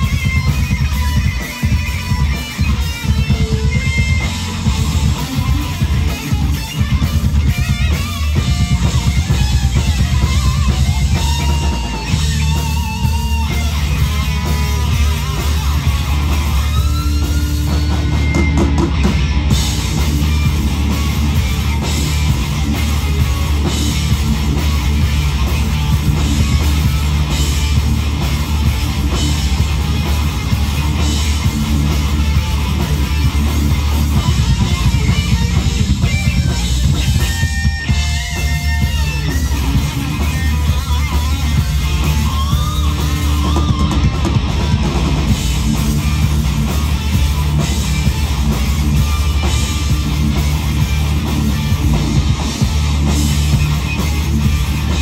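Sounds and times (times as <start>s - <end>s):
live rock band playing: 0.0s - 55.0s
wavering guitar melody: 0.0s - 55.0s.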